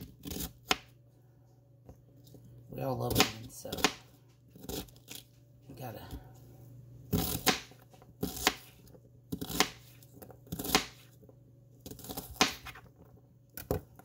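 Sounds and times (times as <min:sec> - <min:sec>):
knife chopping onion on countertop: 0:00.0 - 0:01.0, 0:03.0 - 0:05.3, 0:07.1 - 0:11.2, 0:11.8 - 0:12.9
low steady hum: 0:00.0 - 0:14.0.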